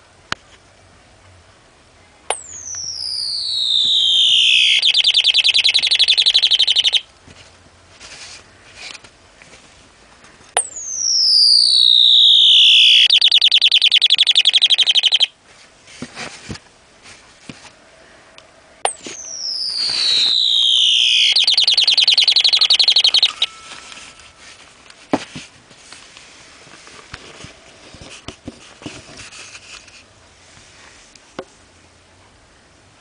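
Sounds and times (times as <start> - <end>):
electronic birdsong: 2.3 - 7.1, 10.6 - 15.3, 18.9 - 24.6.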